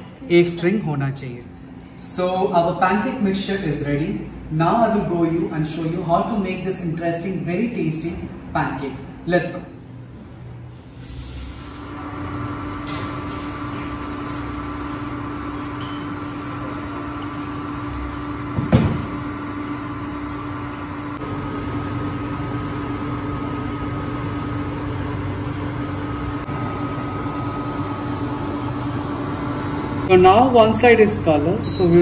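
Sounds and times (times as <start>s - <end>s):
induction cooktop hum and whine: 0.0s - 32.0s
higher electrical whine: 10.9s - 32.0s.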